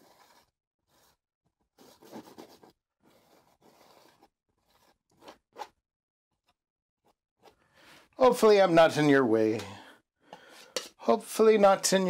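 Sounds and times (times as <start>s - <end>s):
palette knife scraping canvas: 0.0s - 5.8s.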